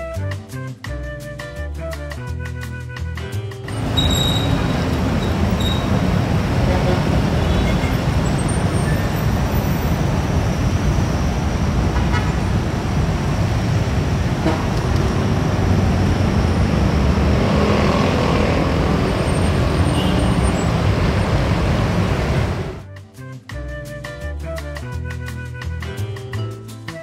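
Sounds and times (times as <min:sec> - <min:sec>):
road traffic: 0:03.6 - 0:22.9.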